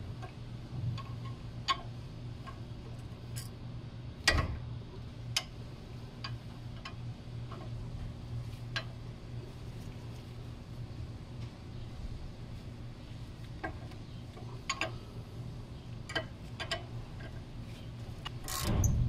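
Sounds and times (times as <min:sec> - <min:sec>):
wrench clicking on metal bolts: 0:16.1 - 0:17.4, 0:18.2 - 0:18.9.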